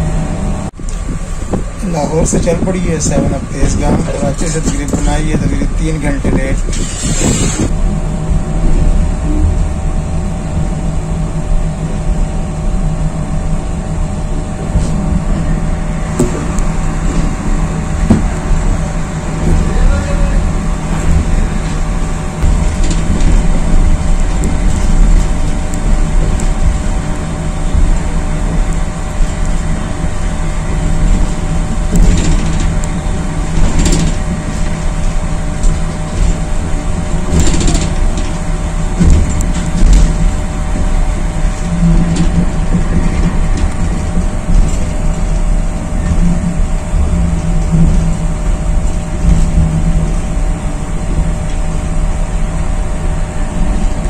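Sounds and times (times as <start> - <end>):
train rumble from inside coach: 0.0 - 54.0
running gear knocks: 37.2 - 38.4, 39.0 - 40.4.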